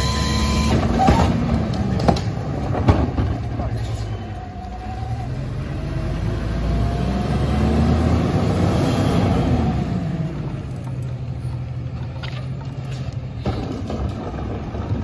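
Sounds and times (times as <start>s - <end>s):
garbage truck engine revving: 0.0s - 10.8s.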